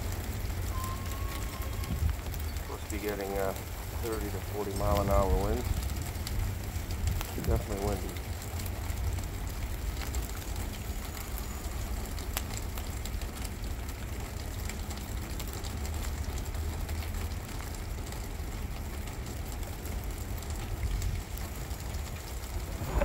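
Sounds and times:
light rain ticks: 0:00.0 - 0:23.0
strong wind buffeting microphone: 0:01.7 - 0:03.1, 0:03.9 - 0:08.1, 0:20.8 - 0:23.0.

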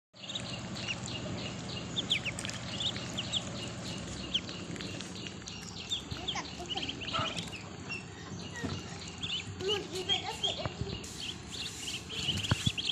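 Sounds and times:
ducklings peeping: 0:00.2 - 0:12.9
low steady hum: 0:00.2 - 0:12.9.

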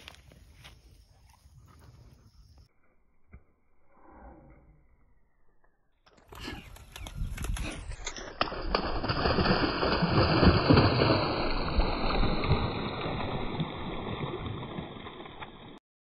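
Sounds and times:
dog splashing through water: 0:07.4 - 0:15.8.

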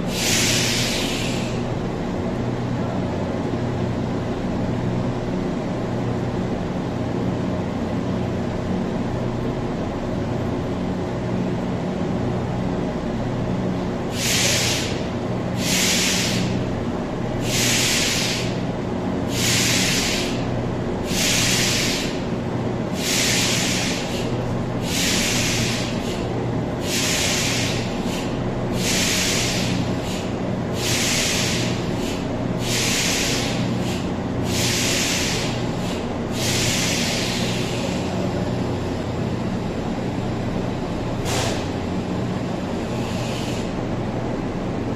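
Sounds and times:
train equipment humming: 0:00.0 - 0:44.9
compressed air hisses: 0:00.1 - 0:01.6, 0:14.1 - 0:15.0, 0:15.6 - 0:16.6, 0:17.4 - 0:18.6, 0:19.3 - 0:20.4, 0:21.0 - 0:22.2, 0:23.0 - 0:26.2, 0:26.8 - 0:38.1, 0:41.2 - 0:41.7, 0:42.9 - 0:43.8.

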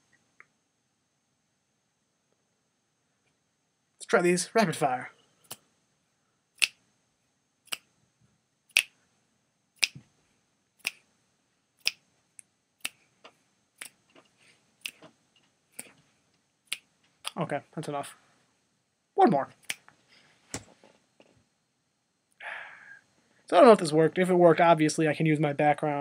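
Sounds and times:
fingers snapping: 0:06.6 - 0:06.8, 0:07.7 - 0:07.9, 0:08.7 - 0:09.0, 0:09.8 - 0:10.0, 0:11.8 - 0:12.0.

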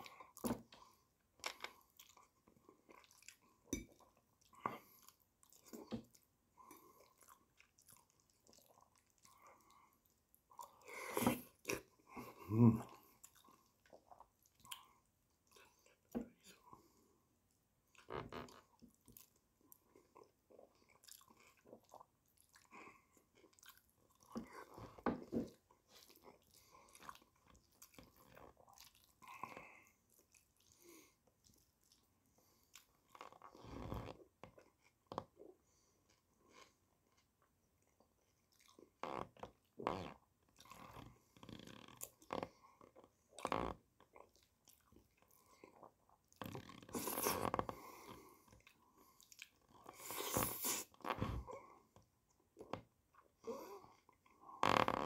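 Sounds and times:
man chewing food: 0:00.0 - 0:55.0.

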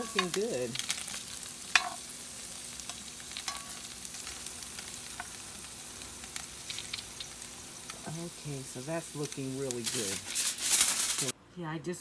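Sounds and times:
potatoes sizzling in a skillet: 0:00.0 - 0:11.4
metal spoon stirring: 0:02.9 - 0:04.4.

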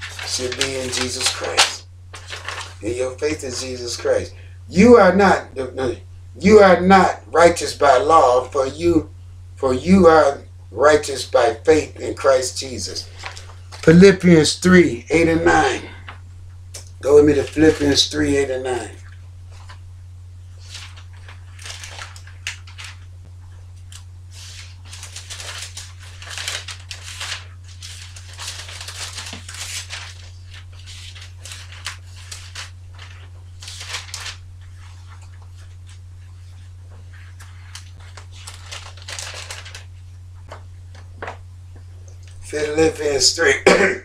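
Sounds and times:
thin pages rustling: 0:00.0 - 0:02.9, 0:13.0 - 0:13.9, 0:19.4 - 0:19.9, 0:20.5 - 0:42.4
steady low hum: 0:00.0 - 0:44.0.

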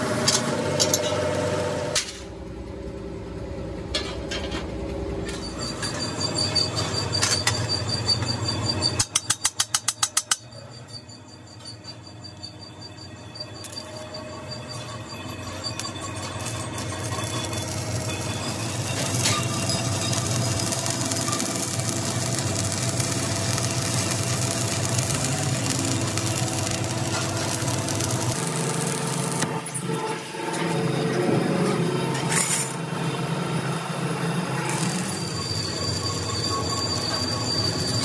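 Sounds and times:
welding arc crackling: 0:14.6 - 0:29.7.

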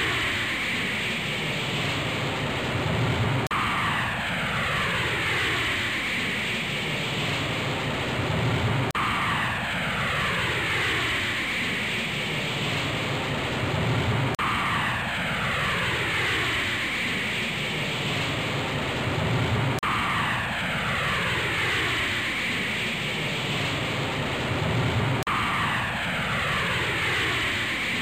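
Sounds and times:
wind roaring: 0:00.0 - 0:28.0.

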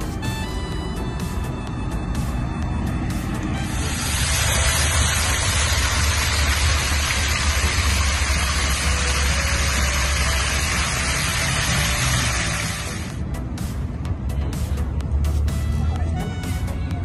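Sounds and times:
fountain water splashing: 0:03.6 - 0:13.2.

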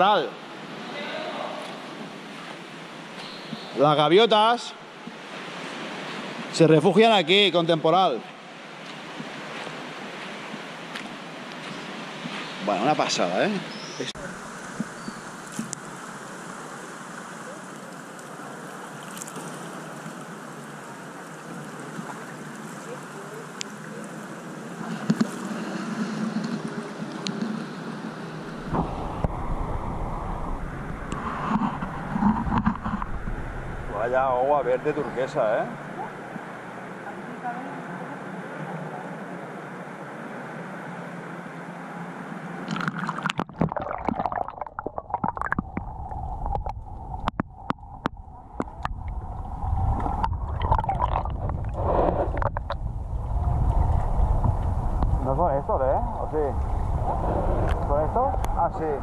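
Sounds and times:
water sloshing and lapping: 0:14.2 - 0:27.8, 0:42.6 - 0:55.2
underwater gurgling: 0:14.2 - 0:35.0, 0:42.6 - 0:55.5
low rumble: 0:28.5 - 0:35.0, 0:44.6 - 0:59.0
sharp clicks underwater: 0:42.6 - 0:49.2, 0:49.9 - 0:52.9
sea water lapping: 0:42.6 - 0:55.0.

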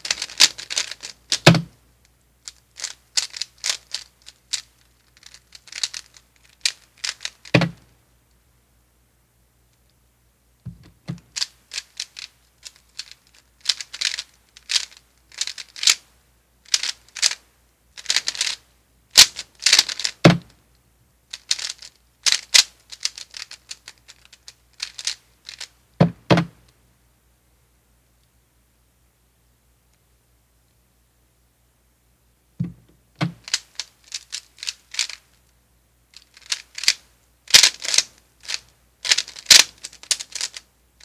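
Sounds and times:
plastic puzzle cube clicking: 0:00.0 - 0:01.8, 0:02.4 - 0:07.8, 0:10.7 - 0:16.0, 0:16.7 - 0:17.4, 0:18.0 - 0:18.6, 0:19.2 - 0:20.6, 0:21.3 - 0:26.6, 0:32.6 - 0:35.3, 0:36.2 - 0:40.7
soft thumps: 0:10.7 - 0:11.3, 0:32.6 - 0:33.4.

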